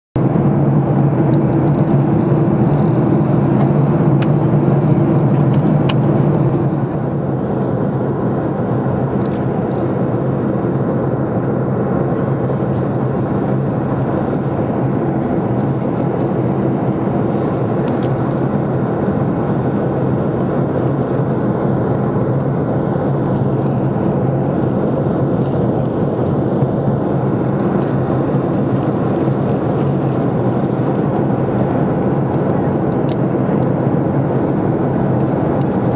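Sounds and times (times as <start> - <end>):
airliner cabin engine rush: 0.2 - 35.9.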